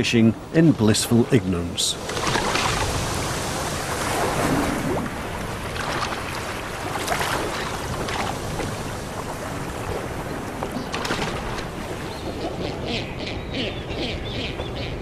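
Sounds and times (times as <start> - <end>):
sea water washing and splashing: 0.6 - 12.4
birds plunging into water: 2.0 - 12.1.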